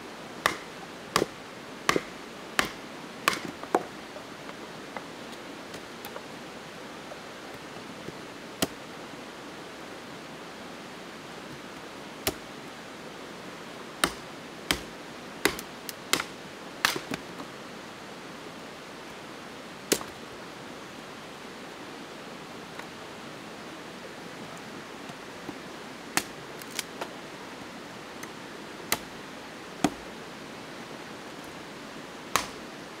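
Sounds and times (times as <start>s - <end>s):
steady hiss: 0.0s - 33.0s
blade splitting dry wood: 0.4s - 3.9s, 14.0s - 14.9s, 15.5s - 17.2s, 32.3s - 32.6s.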